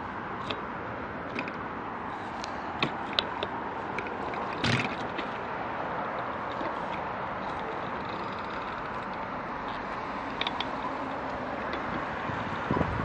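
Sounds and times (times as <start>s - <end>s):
city traffic hum: 0.0s - 13.0s
bicycle clattering rattle: 4.4s - 5.4s
sharp clicks: 6.1s - 12.0s.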